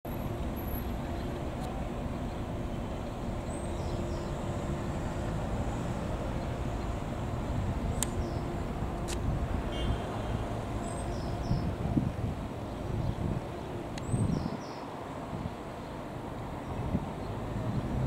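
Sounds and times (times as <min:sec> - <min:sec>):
vehicle road and engine noise: 0:00.1 - 0:18.0
faint click: 0:08.0 - 0:08.2.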